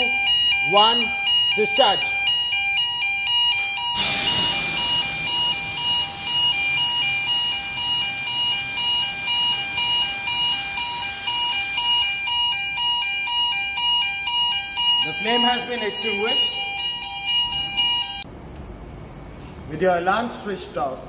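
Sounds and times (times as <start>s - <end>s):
pulsing two-tone alarm: 0.0s - 21.0s
gas discharge hiss: 3.8s - 6.6s.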